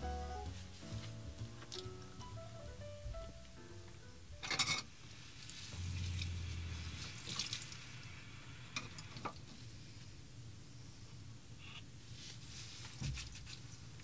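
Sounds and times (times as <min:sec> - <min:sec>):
water pump hum: 0:05.4 - 0:09.2
tap water running into sink: 0:07.0 - 0:07.9.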